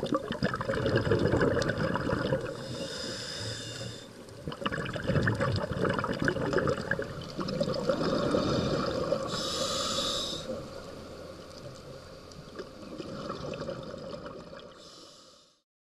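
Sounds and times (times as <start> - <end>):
bubbles gurgling and crackling: 0.0 - 14.8
diver's regulator breathing underwater: 0.6 - 10.8, 13.0 - 15.6.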